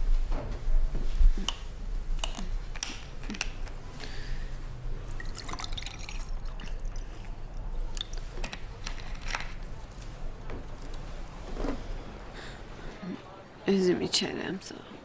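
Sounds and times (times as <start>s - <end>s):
water pouring into a glass: 5.0s - 7.7s.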